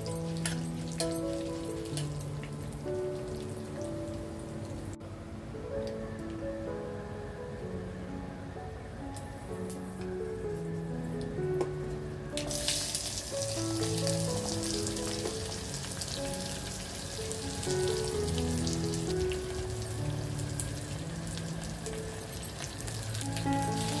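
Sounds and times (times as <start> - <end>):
instrumental background music: 0.0 - 24.0
shallots sizzling in hot oil: 12.4 - 24.0.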